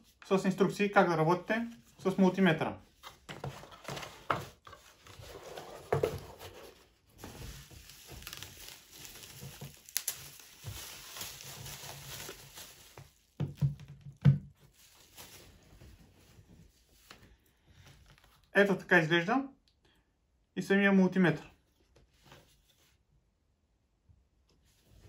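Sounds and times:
paper rustling: 2.9 - 13.6, 14.6 - 18.4
bubble wrap crinkling: 4.8 - 17.2.

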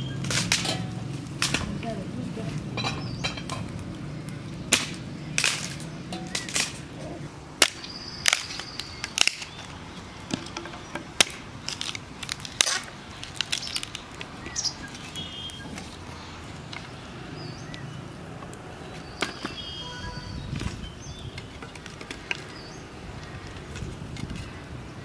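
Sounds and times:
bird chirping: 2.8 - 11.2, 13.4 - 24.6
blade chopping dry wood: 4.6 - 6.8, 7.6 - 9.7, 10.3 - 14.5
bird whistling: 14.4 - 15.9, 19.0 - 21.5.

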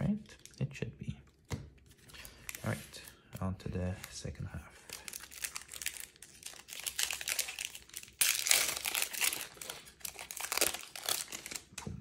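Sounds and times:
foil wrapper crinkling: 4.9 - 11.8
foil wrapper ripping open: 5.0 - 11.7.

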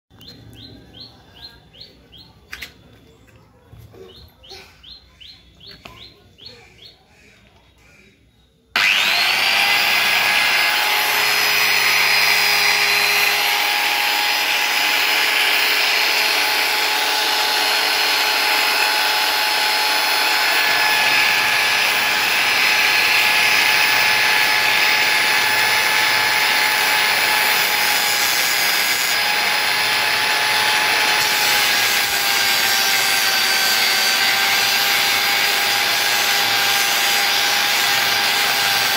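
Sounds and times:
small bird chirps: 0.1 - 3.3, 3.9 - 8.7
angle grinder whine: 8.7 - 38.9
wood rasping on sanding disc: 8.8 - 38.9.

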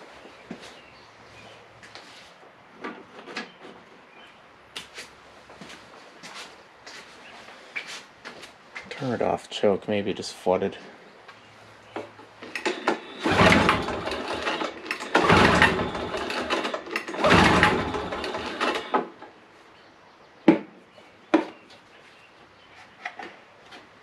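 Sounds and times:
engine cranking without starting: 12.4 - 19.2.

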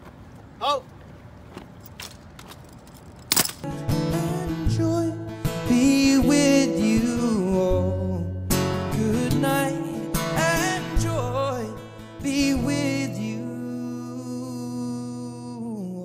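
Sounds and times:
guitar: 3.6 - 16.0
person singing: 4.0 - 16.0.

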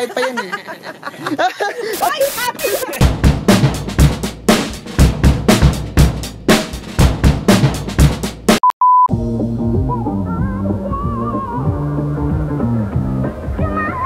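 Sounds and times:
music with hard drum beat: 2.0 - 13.3
electronic test-tone beep: 8.6 - 9.1.

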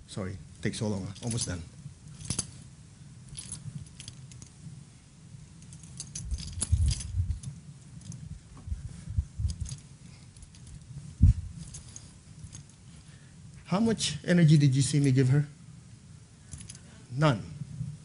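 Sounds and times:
dull low thumps: 8.3 - 9.8, 11.1 - 11.8.

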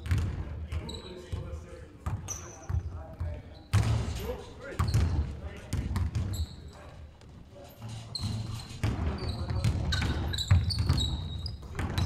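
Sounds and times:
basketball bouncing on floor: 0.0 - 4.0, 4.8 - 6.4, 8.2 - 12.0
sneaker squeaks: 0.0 - 7.0, 7.7 - 12.0.

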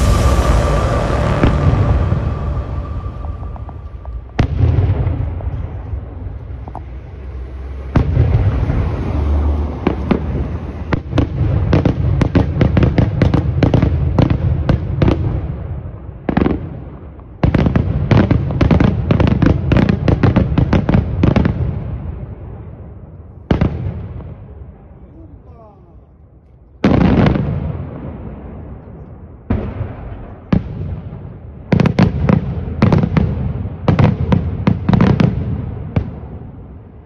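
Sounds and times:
low echoing rumble: 0.0 - 6.7
fireworks bangs: 0.0 - 22.7, 26.8 - 37.0.

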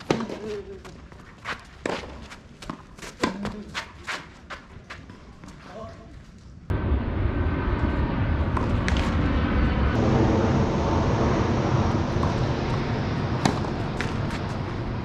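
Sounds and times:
tennis ball hitting racket: 13.4 - 14.5.

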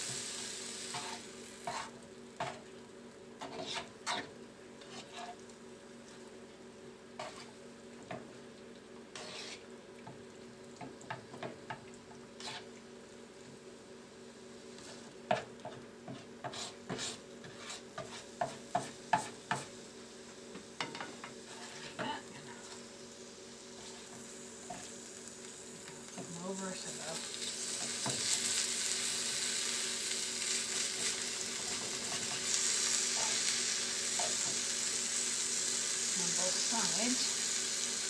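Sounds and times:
spatula scraping a skillet: 0.0 - 2.6, 3.4 - 5.4, 7.2 - 7.6, 9.1 - 9.7, 12.4 - 12.7, 16.1 - 19.8, 20.8 - 22.8, 23.7 - 24.9, 27.4 - 29.7, 30.4 - 34.7
chicken frying sizzle: 0.0 - 38.0.

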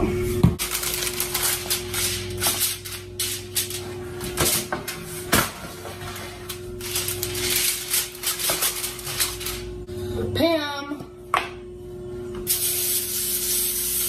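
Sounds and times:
aluminium foil crinkling: 0.6 - 3.8, 6.7 - 9.8.

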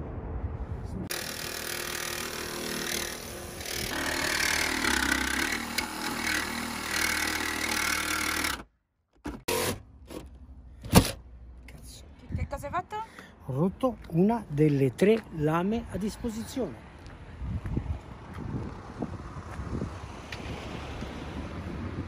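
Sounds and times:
jigsaw cutting sheet metal: 1.1 - 8.7, 9.4 - 9.8.

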